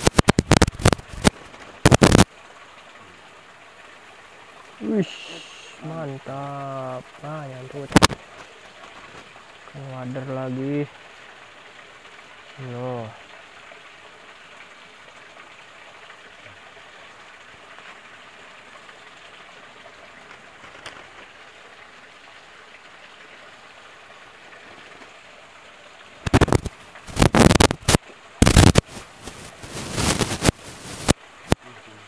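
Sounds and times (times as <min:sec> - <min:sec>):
loud irregular crackling bursts: 0:00.0 - 0:02.3, 0:07.8 - 0:08.2, 0:26.2 - 0:31.6
stream water running: 0:00.0 - 0:32.0.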